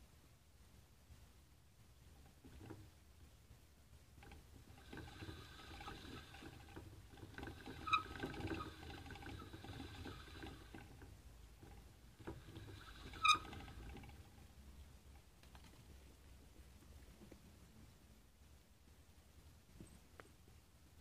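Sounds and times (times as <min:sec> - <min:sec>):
exercise wheel rattling whir: 0:02.0 - 0:16.0.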